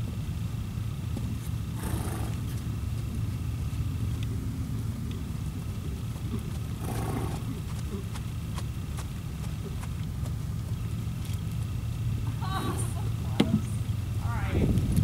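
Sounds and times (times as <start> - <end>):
steady low rumble: 0.0 - 15.0
horse snorting: 1.7 - 2.8, 5.0 - 9.9.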